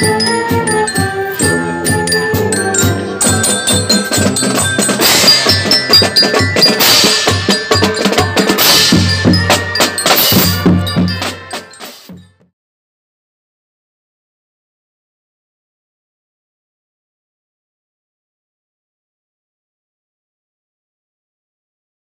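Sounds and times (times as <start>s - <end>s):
drums beating quick rhythm: 0.0s - 12.4s
bright bell-like notes: 0.0s - 12.5s.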